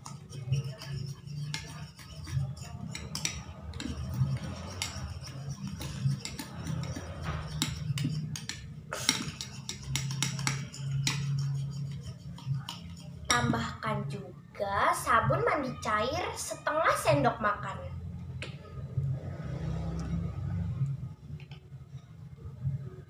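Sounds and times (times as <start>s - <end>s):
spoon scraping ceramic bowl: 0.0s - 13.6s.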